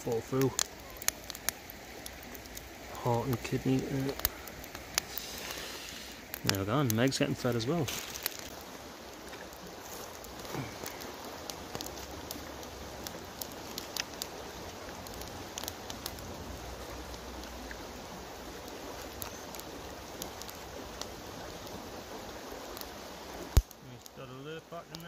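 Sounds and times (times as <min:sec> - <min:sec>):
river flowing over stones: 0:00.0 - 0:25.0
foil wrapper crinkling: 0:07.8 - 0:08.6.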